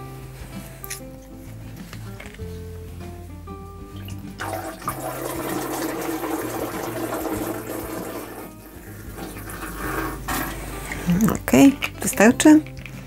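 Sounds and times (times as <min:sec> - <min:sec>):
background music: 0:00.0 - 0:13.0
liquid pouring into water: 0:04.0 - 0:10.6.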